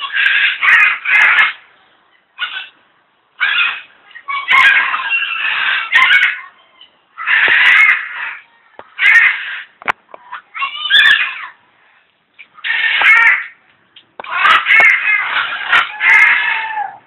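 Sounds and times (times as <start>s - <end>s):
macaws squawking: 0.0s - 1.7s, 2.4s - 2.8s, 3.4s - 6.6s, 7.2s - 11.5s, 12.4s - 13.6s, 14.2s - 17.0s.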